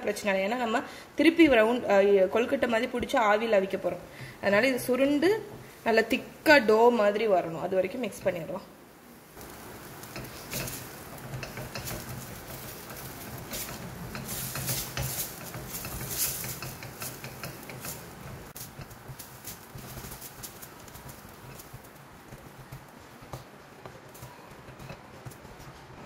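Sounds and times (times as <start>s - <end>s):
spatula scraping metal pan: 9.4s - 23.4s.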